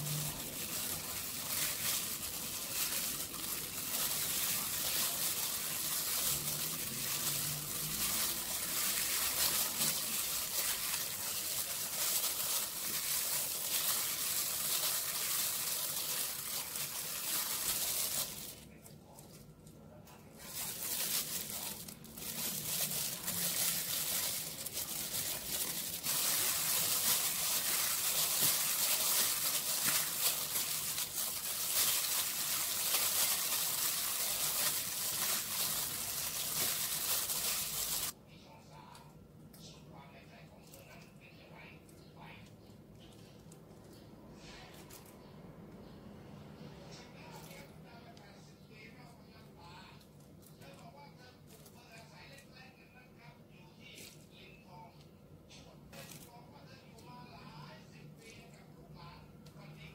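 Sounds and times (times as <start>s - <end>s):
plastic glove crinkling: 0.0s - 38.2s, 55.9s - 56.4s.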